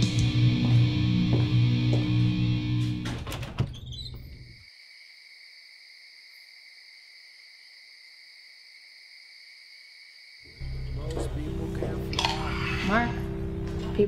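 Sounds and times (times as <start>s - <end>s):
insects chirring: 3.7s - 11.4s
music track: 10.6s - 14.0s.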